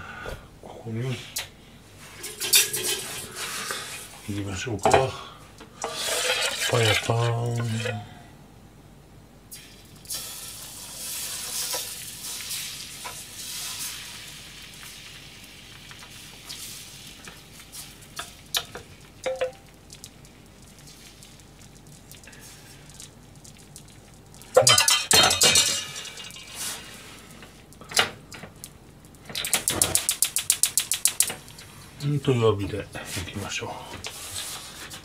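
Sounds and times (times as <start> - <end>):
batter sizzling in frying pan: 5.8 - 7.8, 9.5 - 31.8.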